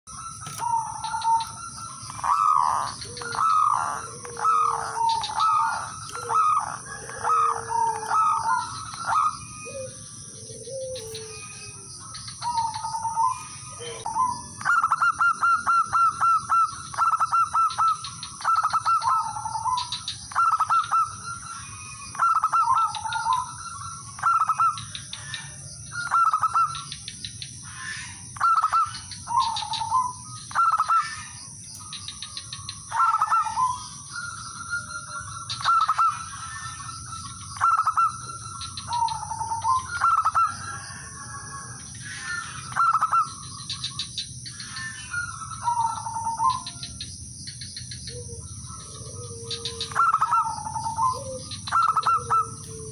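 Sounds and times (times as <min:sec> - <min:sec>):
dove trilling coos: 0:00.1 - 0:52.9
lower-pitched coo: 0:02.2 - 0:17.9, 0:48.1 - 0:52.9.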